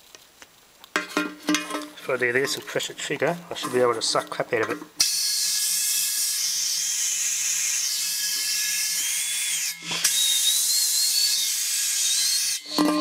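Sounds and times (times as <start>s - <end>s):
compressed air hissing with whistle: 9.8s - 11.3s.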